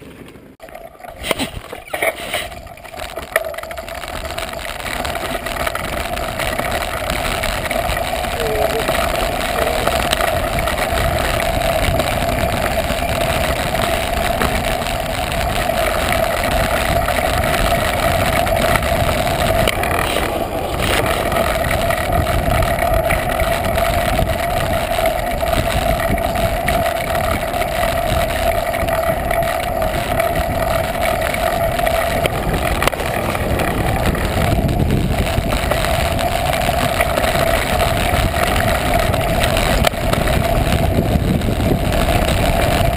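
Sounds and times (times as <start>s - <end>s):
mountain bike rattling: 0.0s - 42.9s
wind noise: 0.0s - 42.9s.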